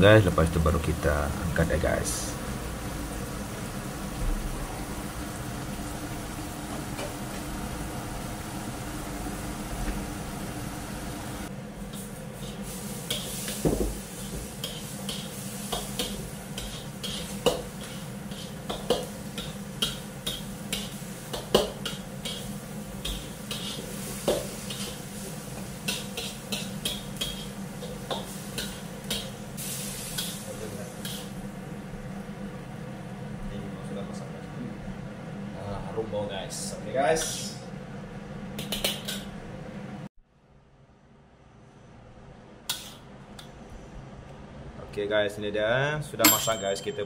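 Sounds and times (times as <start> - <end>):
food bubbling and sizzling in wok: 1.9 - 33.4.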